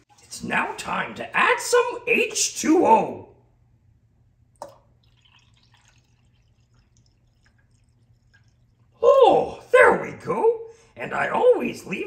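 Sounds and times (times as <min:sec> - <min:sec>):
water pouring into a mug: 0:04.6 - 0:09.0.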